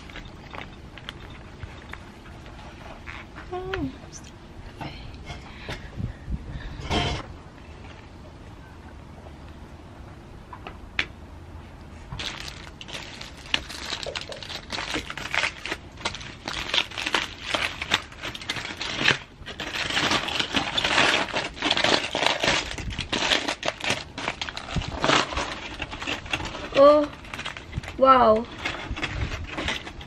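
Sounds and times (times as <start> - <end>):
aluminium foil crinkling: 0.0 - 3.3, 12.1 - 30.0.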